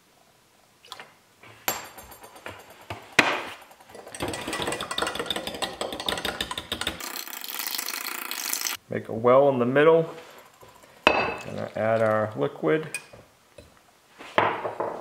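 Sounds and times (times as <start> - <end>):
metal spoon clinking in glass cup: 1.7 - 7.0, 10.2 - 12.1.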